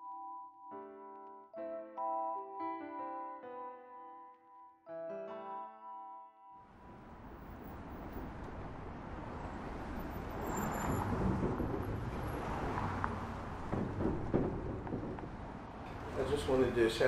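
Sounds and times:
distant city traffic: 0:06.7 - 0:17.0
faint knocks: 0:13.6 - 0:16.0.

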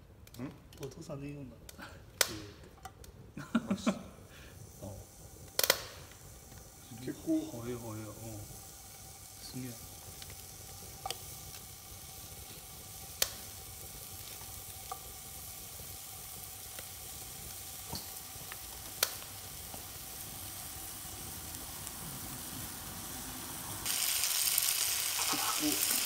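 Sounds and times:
meat sizzling in frying pan: 0:03.5 - 0:26.0.

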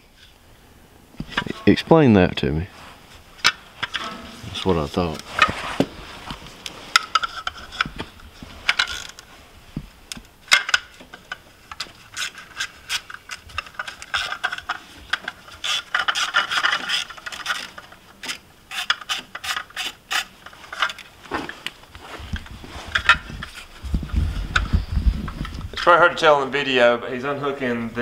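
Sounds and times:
metal scraping: 0:01.2 - 0:09.5.

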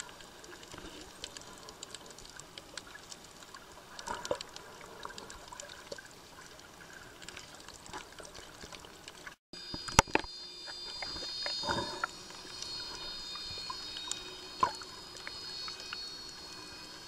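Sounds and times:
underwater clicks and crackles: 0:00.0 - 0:17.0
underwater hiss: 0:10.9 - 0:17.0.

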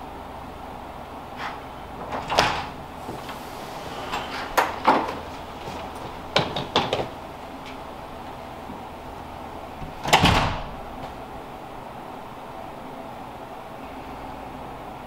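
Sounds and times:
low steady hum: 0:00.0 - 0:15.0
door clicks and knocks: 0:01.4 - 0:08.4, 0:09.8 - 0:11.2.

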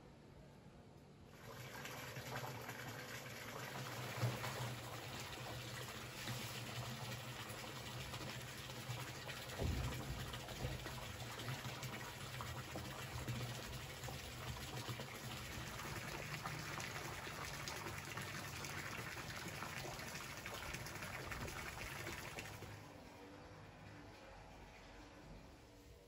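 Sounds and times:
pool water running and lapping: 0:01.3 - 0:25.9.

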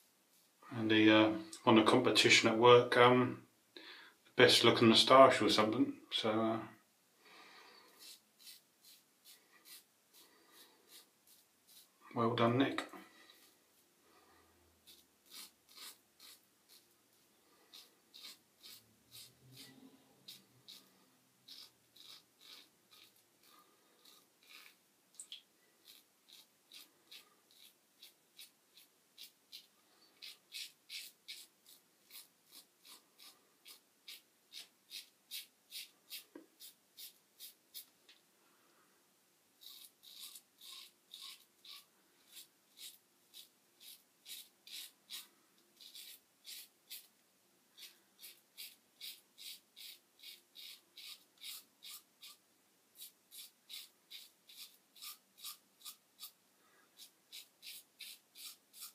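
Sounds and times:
razor scraping stubble: 0:07.9 - 0:11.9, 0:14.8 - 0:24.8, 0:25.8 - 0:37.9, 0:39.6 - 0:47.1, 0:47.8 - 0:52.4, 0:53.0 - 0:56.4, 0:57.0 - 0:58.9.

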